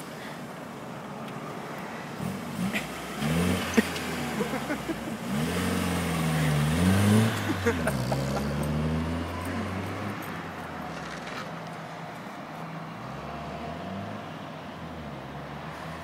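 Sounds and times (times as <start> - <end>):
car engine revving: 2.2 - 11.4.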